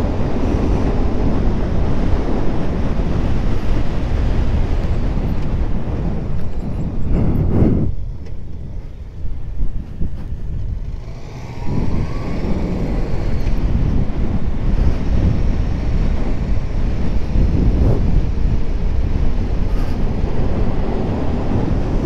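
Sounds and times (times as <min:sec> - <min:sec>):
motorcycle engine running: 0:00.0 - 0:22.0
wind rushing over microphone: 0:00.0 - 0:22.0.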